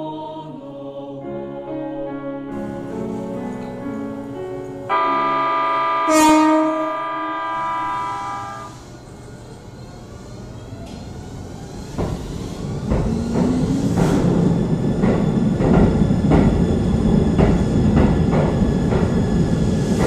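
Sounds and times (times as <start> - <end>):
music: 0.0 - 5.3
train running noise: 2.6 - 20.0
train horn: 4.9 - 9.0.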